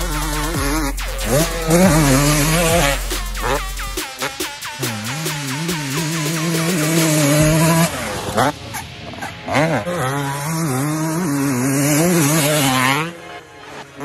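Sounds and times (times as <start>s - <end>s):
dirt bike engine revving: 0.0s - 14.0s.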